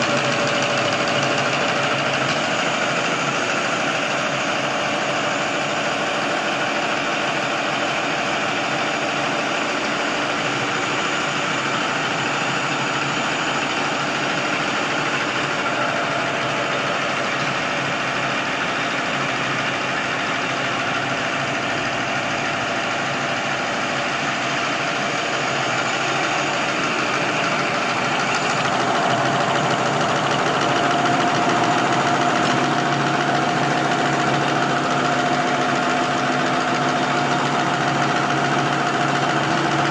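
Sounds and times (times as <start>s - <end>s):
fast mechanical clatter of machine: 0.0s - 39.9s.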